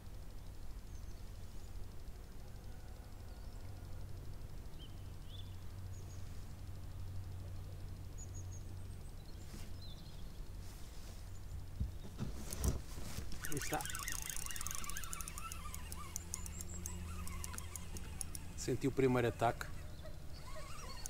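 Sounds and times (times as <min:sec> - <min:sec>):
fishing reel clicking rapidly: 0:13.3 - 0:21.0.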